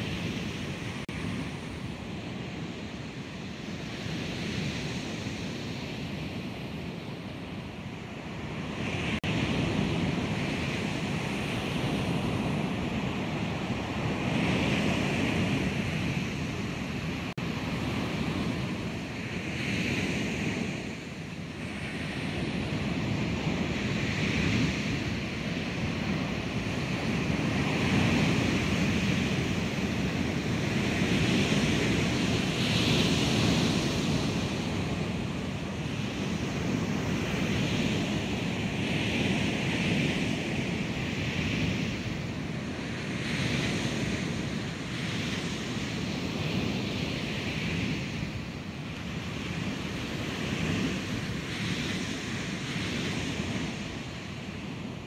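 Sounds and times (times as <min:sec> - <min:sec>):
ocean waves crashing on shore: 0:00.0 - 0:55.0.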